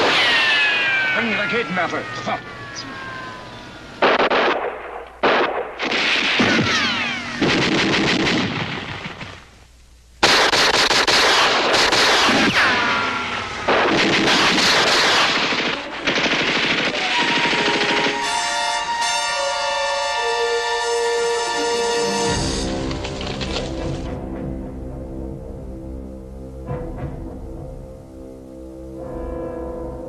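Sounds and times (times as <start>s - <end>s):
machine-gun fire: 0.0s - 1.3s, 4.0s - 9.5s, 10.2s - 18.6s
falling whines: 0.0s - 4.1s, 6.3s - 7.6s, 12.3s - 13.9s, 16.9s - 23.4s.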